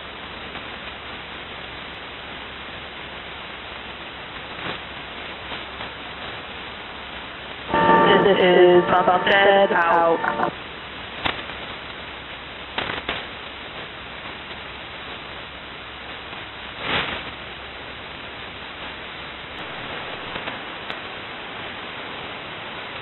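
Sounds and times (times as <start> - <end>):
shortwave radio hiss: 0.0 - 23.0
static crackles: 0.0 - 23.0
static crash: 7.5 - 11.8, 19.6 - 21.4.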